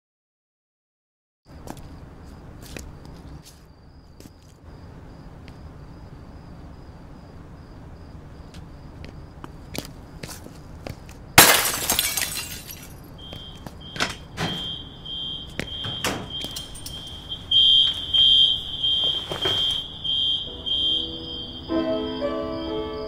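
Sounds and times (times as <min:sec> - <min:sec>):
glass shattering: 0:11.4 - 0:13.1
high alarm beeping: 0:13.2 - 0:23.0
piano notes: 0:19.5 - 0:23.0.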